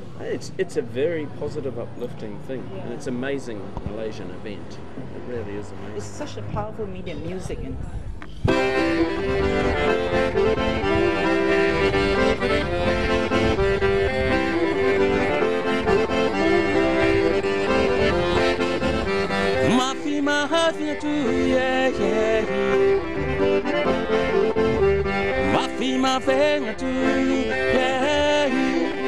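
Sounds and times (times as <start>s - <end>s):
accordion melody over chords: 8.4s - 29.0s.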